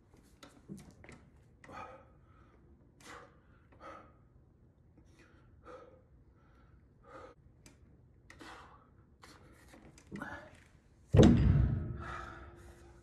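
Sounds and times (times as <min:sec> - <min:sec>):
man breathing hard: 0:01.6 - 0:04.4, 0:05.1 - 0:07.5, 0:08.3 - 0:09.4, 0:11.9 - 0:13.0.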